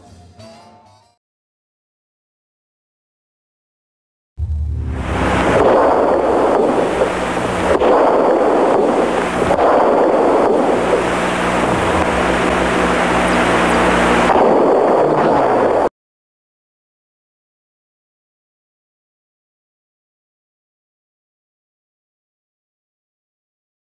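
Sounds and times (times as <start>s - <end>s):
low hum: 4.4s - 15.9s.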